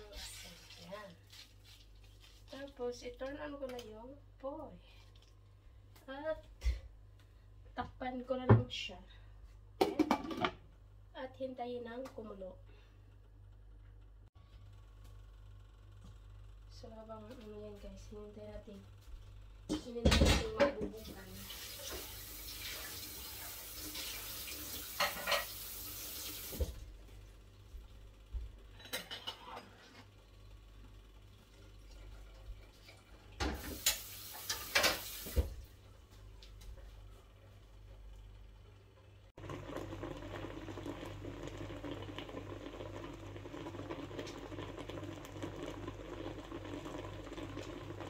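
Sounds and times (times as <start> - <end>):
water running from a tap: 20.9 - 26.9, 31.5 - 35.7, 39.4 - 48.0
liquid bubbling with small pops: 39.4 - 48.0.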